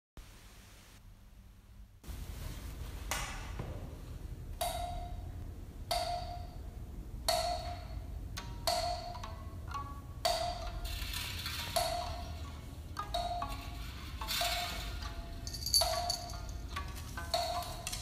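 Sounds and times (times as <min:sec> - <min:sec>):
sharp ringing knocks: 0:04.6 - 0:05.3, 0:05.9 - 0:06.6, 0:07.3 - 0:08.0, 0:15.4 - 0:16.5.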